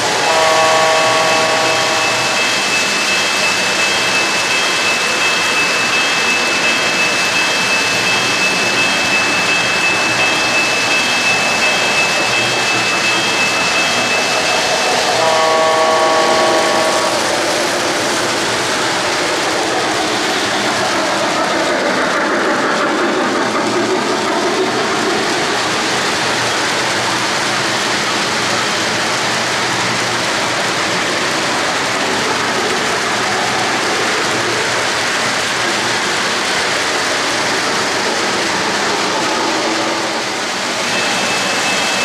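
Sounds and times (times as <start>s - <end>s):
high steady whine: 0.0s - 20.7s
model train rumbling on track: 0.0s - 42.0s
locomotive whistle signal: 0.2s - 3.7s, 11.5s - 18.0s.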